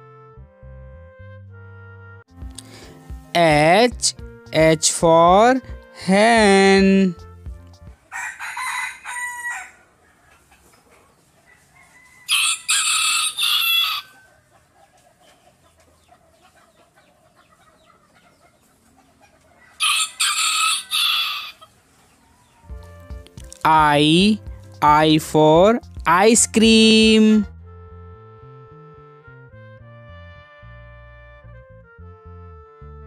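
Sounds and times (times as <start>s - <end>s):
rooster crowing: 8.1s - 10.5s, 11.4s - 14.5s, 19.6s - 21.7s
short rooster calls: 8.2s - 9.8s.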